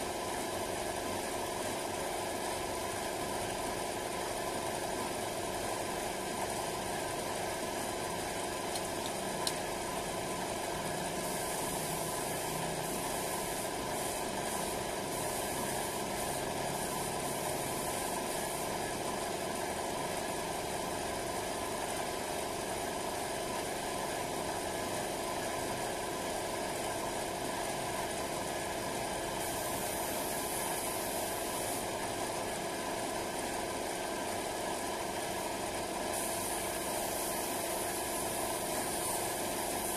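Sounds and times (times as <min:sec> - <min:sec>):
air compressor humming: 0:03.1 - 0:20.6, 0:26.4 - 0:39.9
spray gun air hiss: 0:07.6 - 0:19.0, 0:29.3 - 0:32.1, 0:36.0 - 0:39.9.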